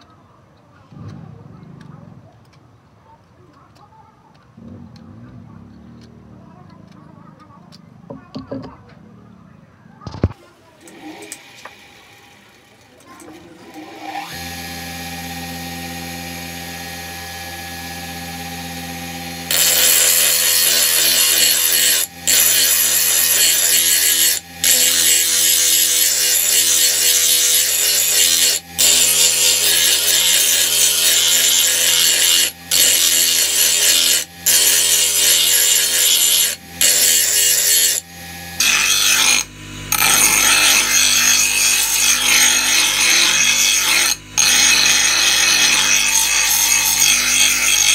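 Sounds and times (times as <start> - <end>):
bench grinder motor hum: 10.8 - 47.9
steel blade grinding on wheel: 17.5 - 47.9.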